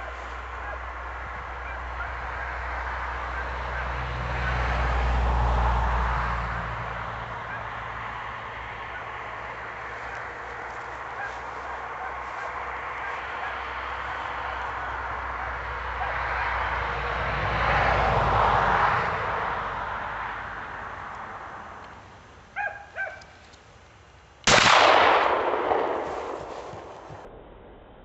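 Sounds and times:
shotgun shot echoing: 24.4s - 28.0s.

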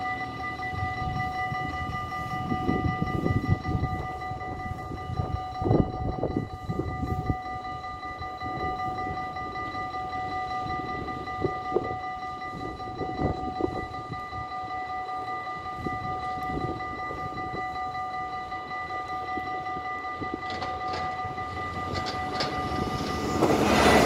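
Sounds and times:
level crossing warning bells: 0.0s - 24.0s.

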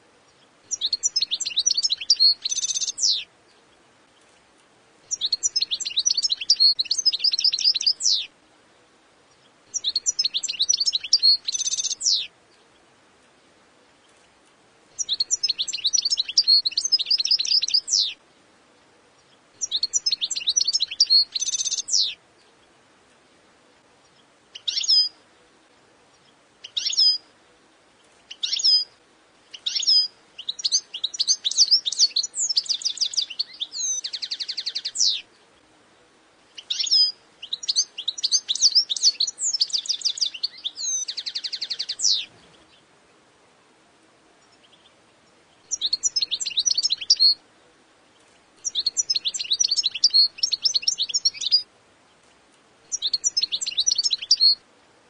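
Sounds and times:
goldfinch twittering song: 0.3s - 4.5s, 5.1s - 8.3s, 9.3s - 12.9s, 14.0s - 18.2s, 19.2s - 22.7s, 24.0s - 25.2s, 26.1s - 27.3s, 28.1s - 35.6s, 36.5s - 42.9s, 44.4s - 47.4s, 48.1s - 52.2s, 52.9s - 54.6s
buzzy bird trills: 9.7s - 12.3s.

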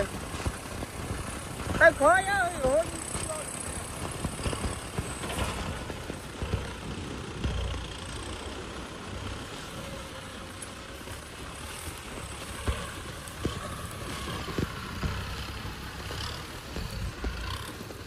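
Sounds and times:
blade pushing soil: 0.0s - 18.0s
diesel tractor engine under load: 0.0s - 18.0s.

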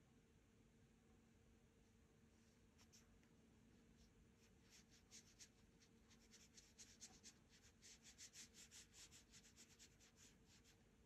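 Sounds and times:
paintbrush strokes on paper: 2.4s - 3.2s, 3.9s - 10.9s.

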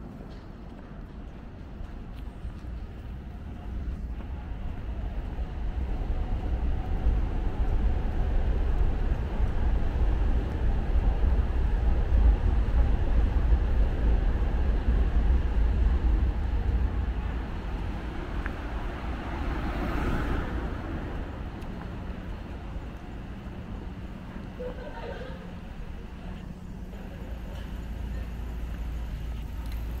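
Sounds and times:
low vehicle rumble: 0.0s - 30.0s.

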